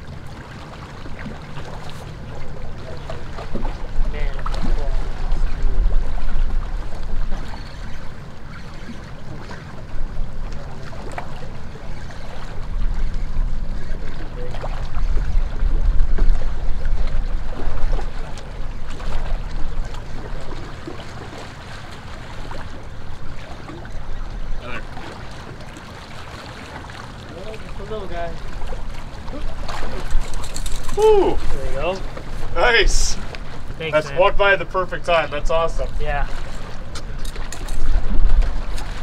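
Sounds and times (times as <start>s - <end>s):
water lapping at shore: 0.0s - 39.0s
wind buffeting microphone: 11.6s - 20.9s, 35.6s - 39.0s.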